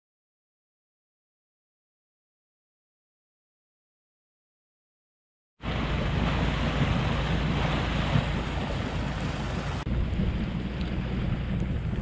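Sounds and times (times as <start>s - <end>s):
rushing sea water: 5.6s - 12.0s
wind rumbling on microphone: 5.6s - 12.0s.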